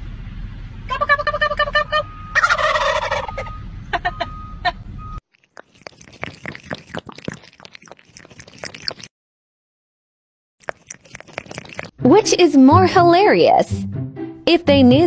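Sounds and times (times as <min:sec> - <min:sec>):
turkeys gobbling: 0:00.9 - 0:04.8
water splashing in a bowl: 0:05.3 - 0:09.1, 0:10.6 - 0:12.0.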